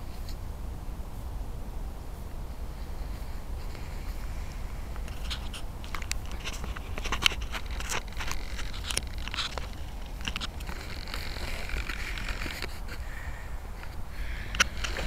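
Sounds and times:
low wind rumble: 0:00.0 - 0:15.0
camera handling scrapes and clicks: 0:05.0 - 0:13.0.

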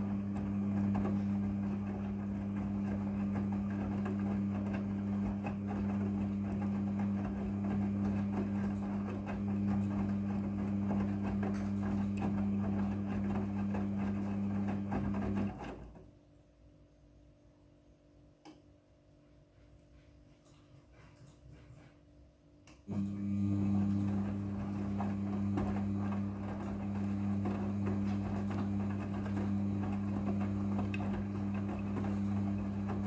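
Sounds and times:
washing machine motor hum: 0:00.0 - 0:16.2, 0:22.8 - 0:33.0.

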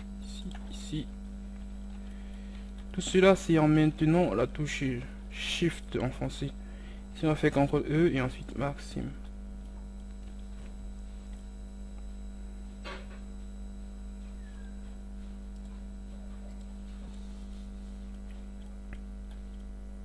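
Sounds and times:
electrical mains hum: 0:00.0 - 0:20.0
faint ticks: 0:18.0 - 0:19.7.

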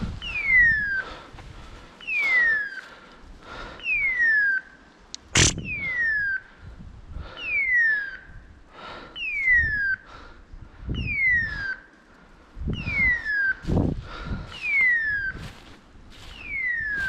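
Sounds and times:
sharp crack: 0:05.2 - 0:05.6
footsteps crunching dry leaves: 0:13.6 - 0:17.0.

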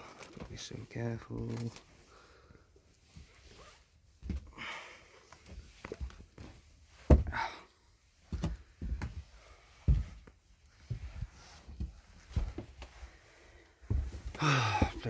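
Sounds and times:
thuds of someone moving around: 0:07.0 - 0:07.4, 0:13.8 - 0:15.0.

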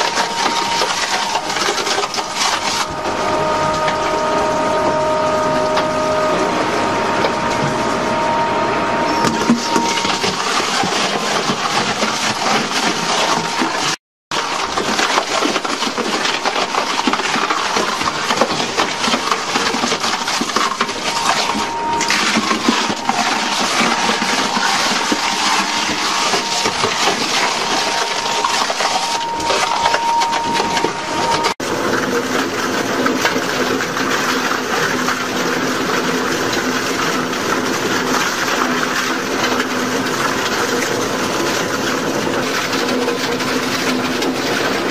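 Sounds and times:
shredding machine crunching: 0:00.0 - 0:44.9.

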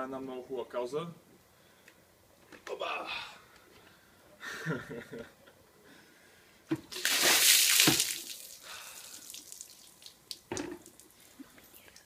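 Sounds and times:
water splashing onto paving: 0:06.9 - 0:11.2
water dripping and trickling: 0:06.9 - 0:12.0.

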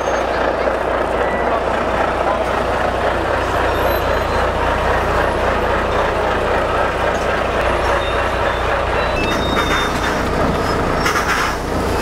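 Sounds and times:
lorry engine humming: 0:00.0 - 0:12.0.

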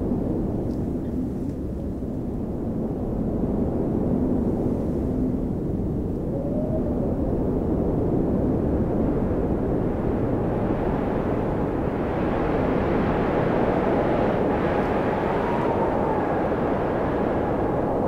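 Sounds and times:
wind blowing: 0:00.0 - 0:18.0.

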